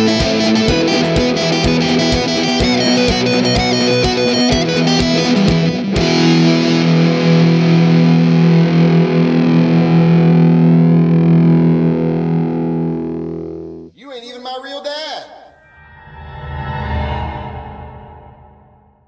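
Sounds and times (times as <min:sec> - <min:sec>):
steady beat: 0:00.0 - 0:06.2
distorted electric guitar: 0:00.0 - 0:13.9.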